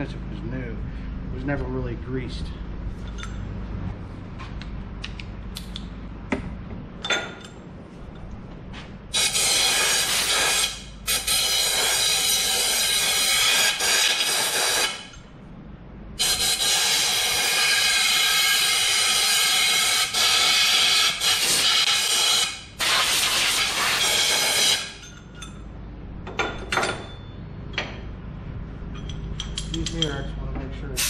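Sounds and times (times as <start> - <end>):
air blow gun hissing: 16.2 - 24.9.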